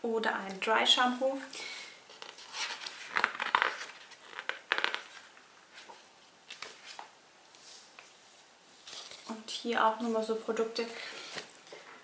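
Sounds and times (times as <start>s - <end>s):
paper leaflet rustling: 2.1s - 8.2s, 8.8s - 9.4s, 10.0s - 11.9s.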